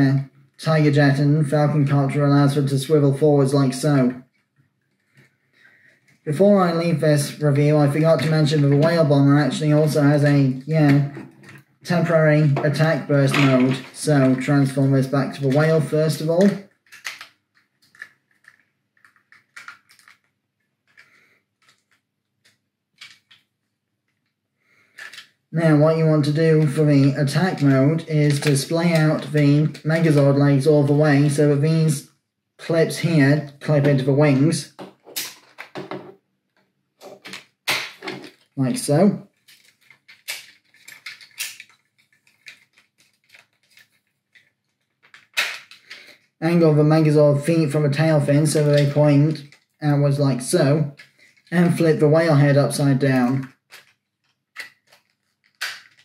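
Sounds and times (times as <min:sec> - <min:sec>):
plastic toy clicking and snapping: 0:16.4 - 0:20.3, 0:39.5 - 0:43.9, 0:53.4 - 0:56.0.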